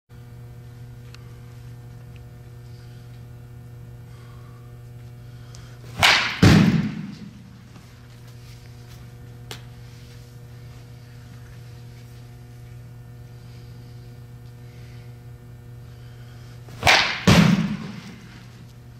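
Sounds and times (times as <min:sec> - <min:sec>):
steady low hum: 0:00.1 - 0:18.9
bat cracking a ball: 0:05.9 - 0:07.7, 0:16.7 - 0:18.6.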